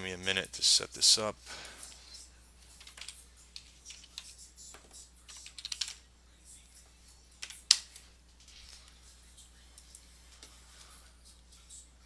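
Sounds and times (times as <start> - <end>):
keyboard typing: 2.7 - 6.0.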